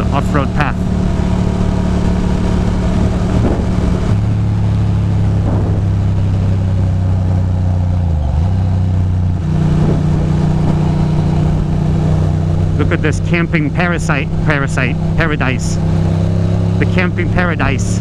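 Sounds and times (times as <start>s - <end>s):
motorcycle engine running: 0.0s - 18.0s
wind noise on microphone: 2.7s - 4.2s, 5.4s - 6.0s, 9.4s - 11.8s.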